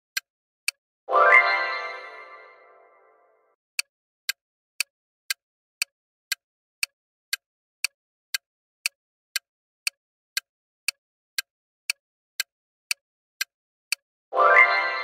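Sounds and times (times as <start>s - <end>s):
clock ticking: 3.8s - 15.0s.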